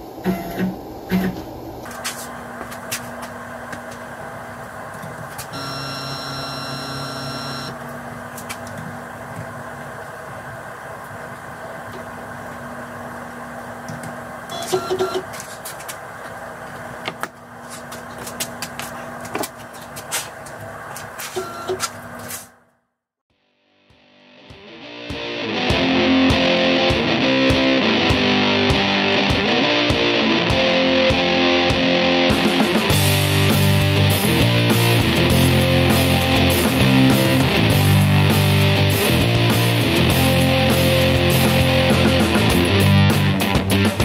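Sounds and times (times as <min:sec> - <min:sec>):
machine hum: 0:00.0 - 0:22.2
axis motors whining: 0:05.5 - 0:07.9.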